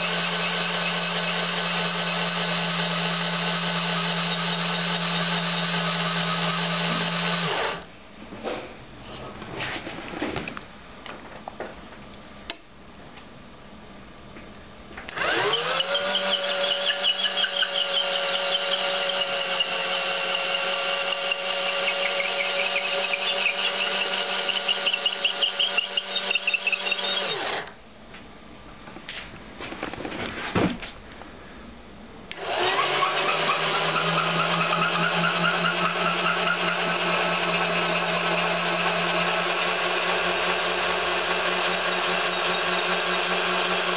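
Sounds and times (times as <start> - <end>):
cordless drill motor spinning: 0.0 - 7.9, 15.1 - 27.8, 32.3 - 43.9.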